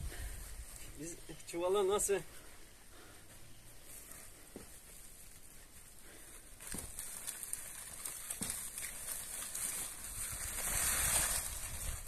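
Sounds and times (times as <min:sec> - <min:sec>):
dry bean pods rustling: 0:05.0 - 0:12.0.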